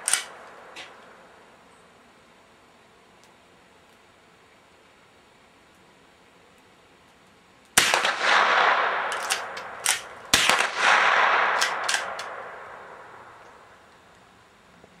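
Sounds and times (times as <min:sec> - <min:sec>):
rifle shots with echo: 0:00.0 - 0:00.8, 0:07.8 - 0:13.7
small sharp cracks: 0:00.0 - 0:01.2, 0:06.5 - 0:14.3.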